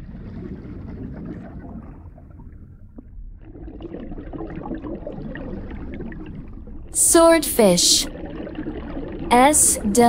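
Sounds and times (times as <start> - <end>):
underwater rush of water: 0.0 - 6.9.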